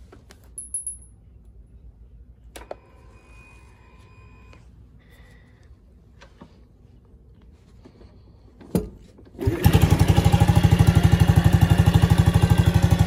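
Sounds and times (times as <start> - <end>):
faint short tone: 2.8 - 5.6
fuel pump electric whine: 9.4 - 13.0.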